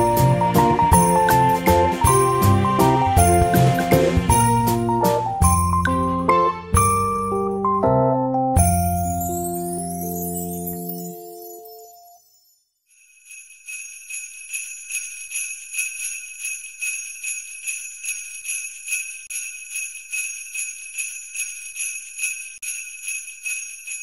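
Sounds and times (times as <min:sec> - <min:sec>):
sleigh bells shaking: 0:00.0 - 0:07.6, 0:08.6 - 0:24.0
light tune: 0:00.0 - 0:12.5.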